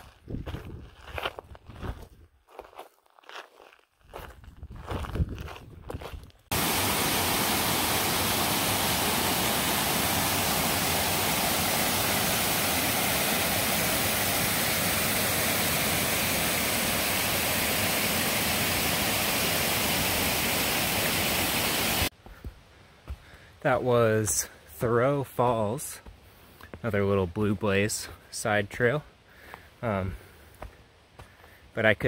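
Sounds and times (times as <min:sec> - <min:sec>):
water cascading over rocks: 0:06.5 - 0:22.1.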